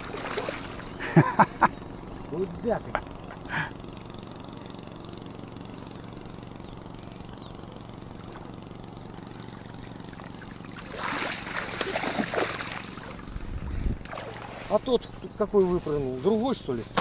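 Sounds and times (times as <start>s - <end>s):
fish splashing in water: 0.0s - 1.0s, 9.3s - 13.4s, 14.0s - 14.8s.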